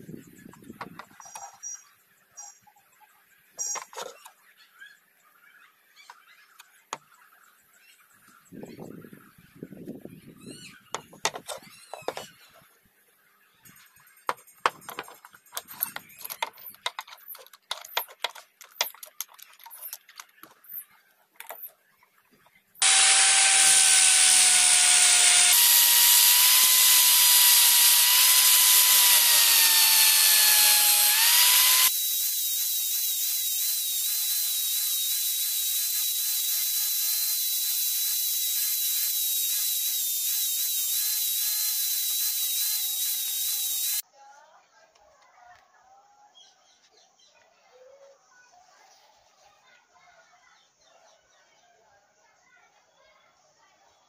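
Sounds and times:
wooden handle knocks and clicks: 0.8 - 1.5, 11.0 - 12.3
electric drill sanding wood: 22.8 - 44.0.

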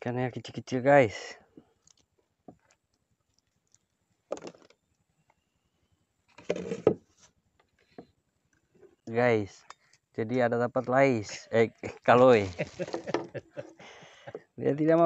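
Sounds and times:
fishing line handling rustles: 1.6 - 4.8, 6.3 - 13.7
wooden knocks of fishing pole: 12.9 - 13.4.

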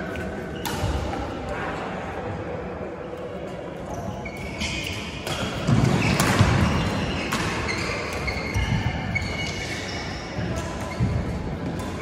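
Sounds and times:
shoes squeaking on court floor: 3.8 - 12.0
racket striking shuttlecock: 5.2 - 8.7.

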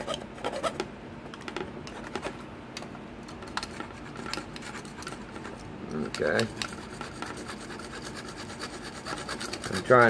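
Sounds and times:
hacksaw cutting plastic: 6.2 - 10.0.

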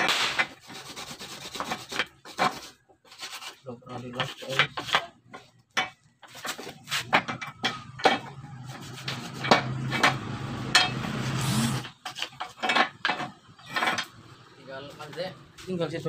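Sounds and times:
brush scraping rusted metal: 0.1 - 7.7, 8.5 - 13.0.

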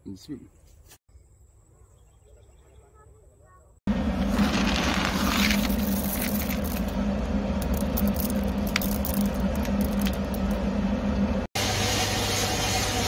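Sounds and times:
coffee beans rattling and scraping: 3.9 - 10.6
machine humming and rumbling: 3.9 - 13.0.

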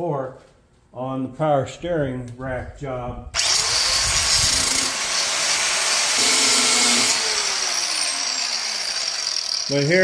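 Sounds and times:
angle grinder cutting metal: 3.4 - 10.0.

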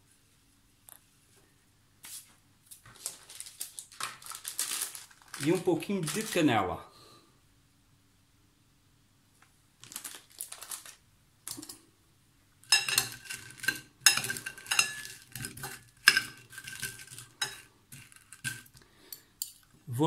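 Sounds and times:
spoon clinking against glass bowl: 12.7 - 19.6.

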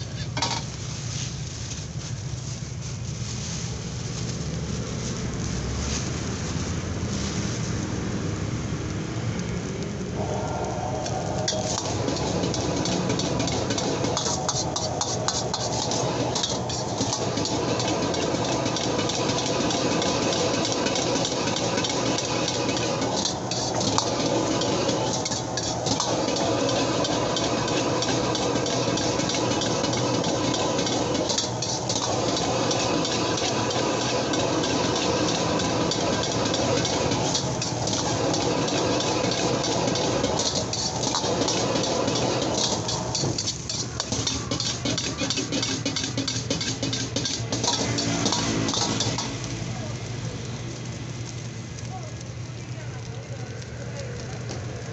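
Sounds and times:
metal ladle scraping a wok: 0.0 - 1.3, 10.2 - 49.5
gas burner rushing: 0.0 - 54.9
rice sizzling: 0.0 - 54.9.

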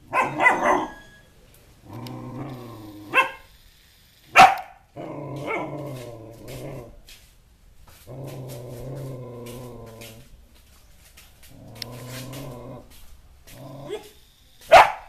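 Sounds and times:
puppy barking: 0.1 - 1.2, 3.0 - 3.5, 4.3 - 5.8, 13.9 - 15.0
puppy growling: 1.8 - 3.5, 4.9 - 7.0, 8.0 - 10.4, 11.4 - 14.2.

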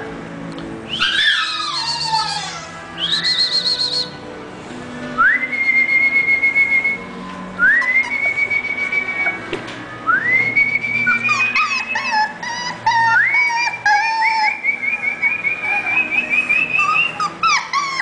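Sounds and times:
person whistling: 3.0 - 4.1, 5.2 - 11.6.

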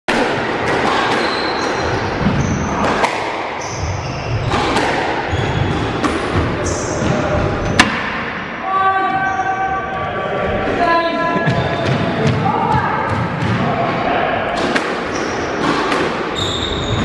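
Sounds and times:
squash ball hitting rackets and walls: 0.1 - 8.5, 11.4 - 17.0
shoes squeaking on wooden floor: 1.2 - 2.8, 3.6 - 7.8, 16.3 - 17.0.

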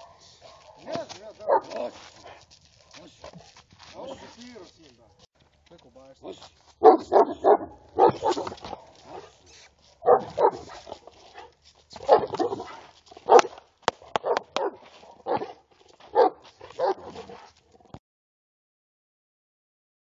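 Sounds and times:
dog barking: 0.0 - 4.3, 6.2 - 9.4, 10.0 - 17.5.

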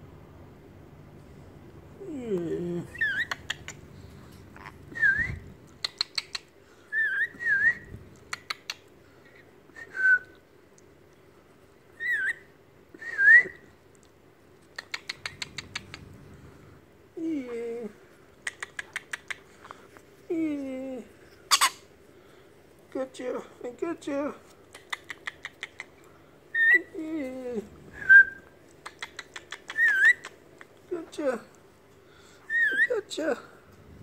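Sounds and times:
parrot clicking chirps: 3.0 - 3.8, 5.7 - 6.5, 8.2 - 8.9, 14.7 - 16.0, 18.4 - 19.4, 24.7 - 25.9, 28.8 - 30.7
parrot wavering call: 21.5 - 21.8, 29.6 - 30.3
parrot whistling: 29.7 - 30.3.

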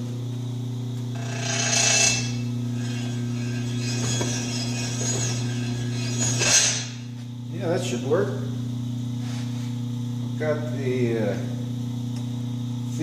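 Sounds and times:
electric motor humming: 1.0 - 7.5.

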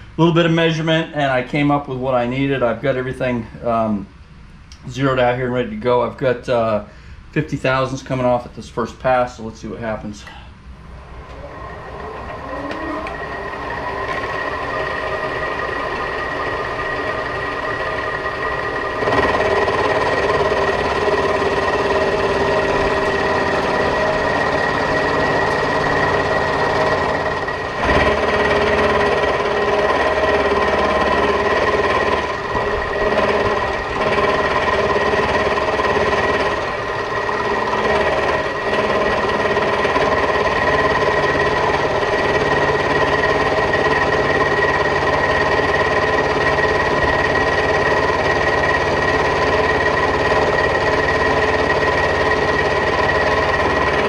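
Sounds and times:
spindle drive whine: 0.0 - 54.0
end mill grinding metal: 10.8 - 54.0.

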